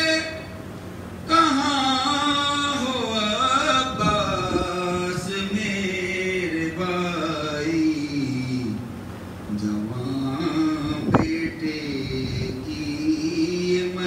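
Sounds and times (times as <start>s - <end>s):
man chanting a lament: 0.0s - 0.6s, 1.3s - 14.0s.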